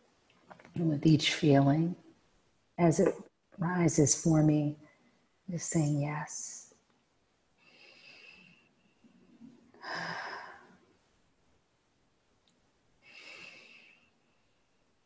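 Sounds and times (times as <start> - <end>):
woman breathing: 7.6 - 11.0, 13.0 - 14.9.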